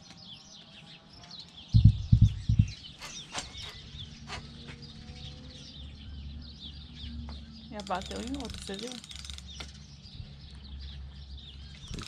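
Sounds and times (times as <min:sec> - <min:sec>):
birds chirping: 0:00.0 - 0:12.0
low thumps: 0:01.8 - 0:03.7.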